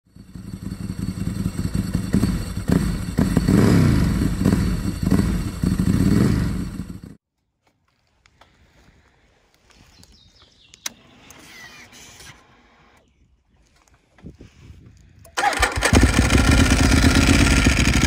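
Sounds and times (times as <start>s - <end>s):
motorcycle engine revving: 0.1s - 7.2s, 15.4s - 18.0s.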